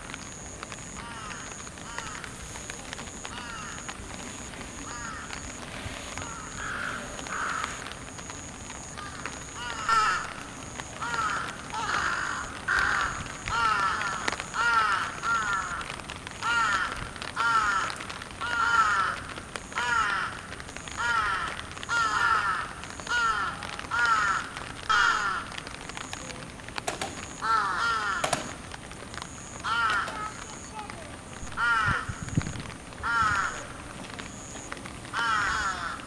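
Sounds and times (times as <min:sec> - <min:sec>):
crow cawing: 0:01.0 - 0:02.4, 0:03.3 - 0:03.9, 0:04.8 - 0:05.5, 0:06.1 - 0:08.0, 0:09.0 - 0:25.6, 0:27.1 - 0:28.6, 0:29.6 - 0:30.8, 0:31.5 - 0:32.3, 0:33.0 - 0:33.8, 0:35.1 - 0:36.0.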